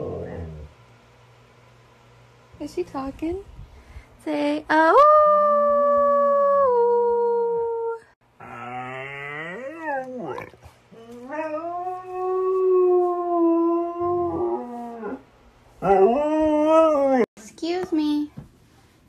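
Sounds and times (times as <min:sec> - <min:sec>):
husky howling: 0:08.4 - 0:17.3.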